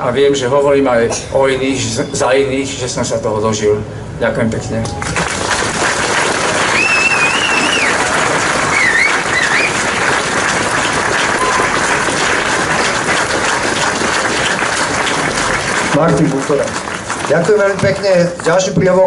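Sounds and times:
crowd applauding: 4.9 - 19.0
high wavering whistles: 6.7 - 8.0, 8.7 - 9.8.

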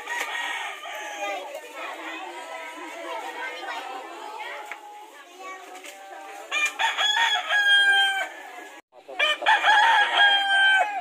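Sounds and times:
rooster crowing: 0.0 - 1.4, 6.5 - 11.0.

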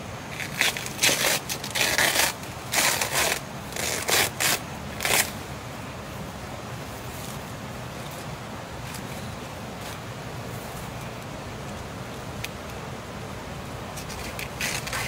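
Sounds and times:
faint steady hiss: 0.0 - 15.0
leaf tearing: 0.3 - 5.4, 14.0 - 15.0.

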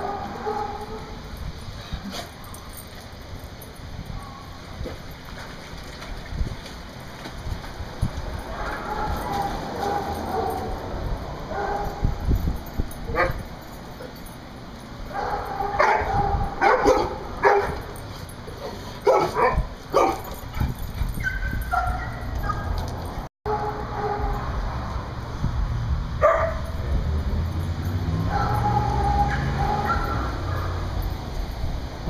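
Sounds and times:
dogs barking and yipping: 0.0 - 5.2, 8.3 - 24.6, 26.2 - 31.4.

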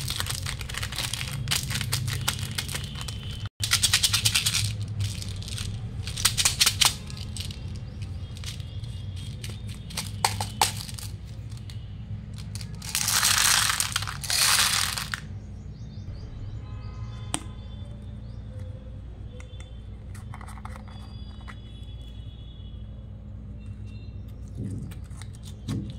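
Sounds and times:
plastic containers clicking: 0.0 - 8.6, 9.2 - 11.8
hard candies rattling into plastic tub: 0.0 - 15.3.

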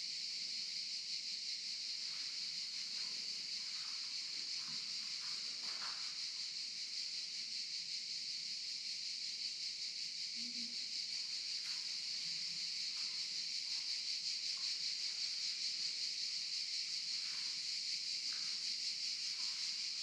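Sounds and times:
cicadas buzzing: 0.0 - 20.0.

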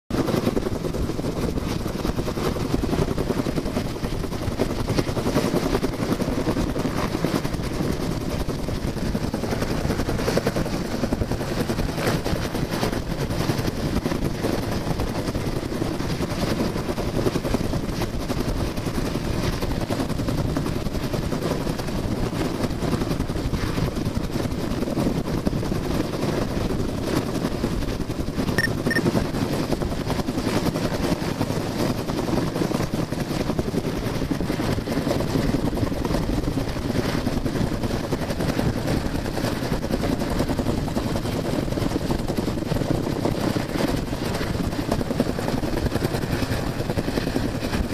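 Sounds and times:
helicopter rotor beating: 0.1 - 47.9
short faint beeps: 28.6 - 29.0.

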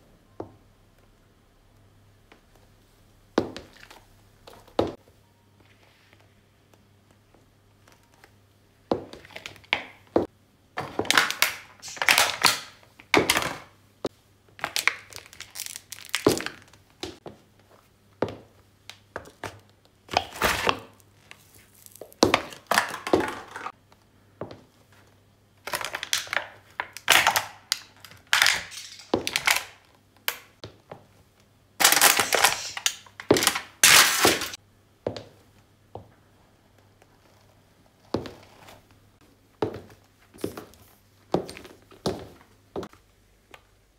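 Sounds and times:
paper cups being flattened: 10.8 - 13.6, 14.6 - 16.8, 20.1 - 23.7, 25.6 - 30.5, 31.8 - 34.6
high heel crushing plastic balls: 10.8 - 13.7, 14.6 - 17.2, 18.3 - 23.7, 25.6 - 30.8, 31.8 - 34.6.

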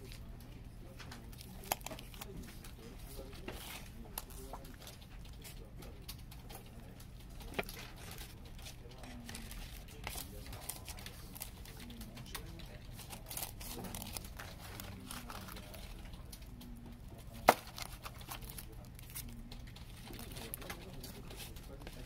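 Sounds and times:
paper sleeves rustling and crinkling: 0.9 - 22.0.

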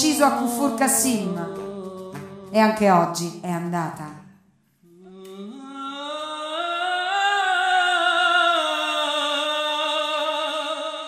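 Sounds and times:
man singing a sustained note: 0.0 - 2.6, 4.9 - 11.0.

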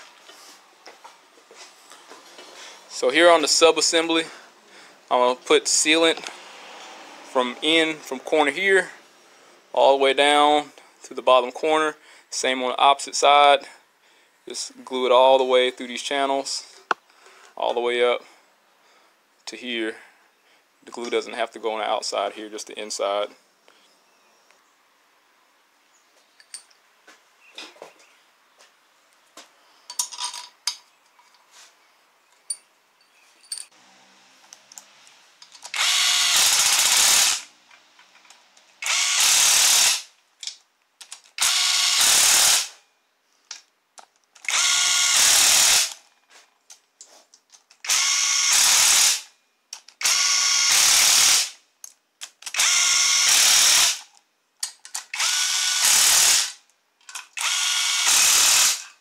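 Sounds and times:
parts clicking and clinking: 26.4 - 26.8, 29.9 - 31.5, 32.3 - 33.8, 34.4 - 35.9, 37.6 - 38.8, 40.4 - 41.4, 43.4 - 44.6, 46.6 - 47.9, 49.7 - 50.1, 54.0 - 55.2, 57.0 - 57.5
cordless power tool driving bolts: 35.4 - 37.6, 38.8 - 40.1, 41.0 - 42.8, 44.4 - 46.0, 47.8 - 49.3, 49.9 - 51.5, 52.2 - 54.1, 54.9 - 59.0.

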